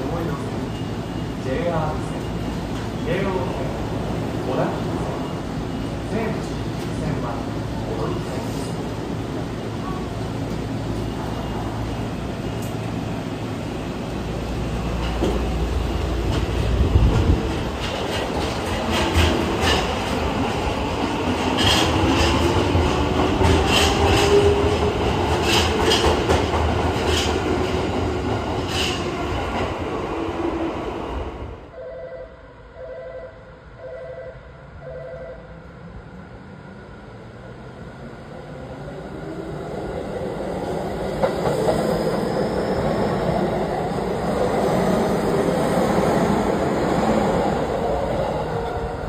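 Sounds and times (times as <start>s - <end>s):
subway train rumble: 0.0s - 49.0s.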